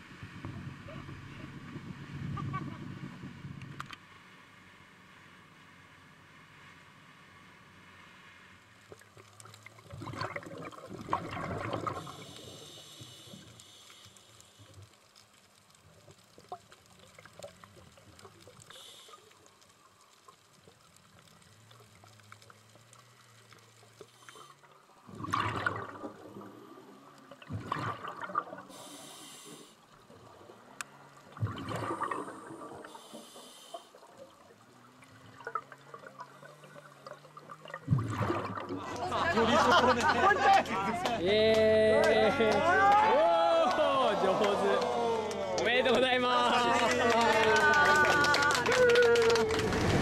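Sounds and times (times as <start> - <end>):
bubbling exhalations: 9.8 - 12.8, 25.0 - 29.1, 31.3 - 33.1, 35.3 - 39.2
regulator hissing inhalations: 12.0 - 14.7, 28.7 - 29.8, 32.9 - 34.0.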